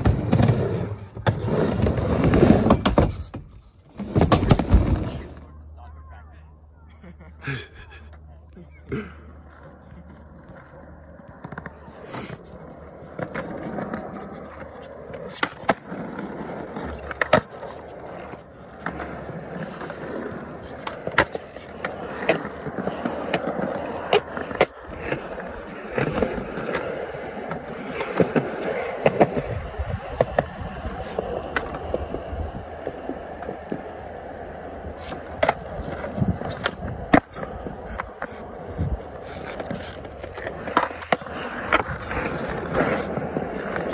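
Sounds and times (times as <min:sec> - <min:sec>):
skateboard wheels rumbling on concrete: 0:00.0 - 0:05.5, 0:08.8 - 0:43.9
skateboard clacks: 0:09.4 - 0:43.9.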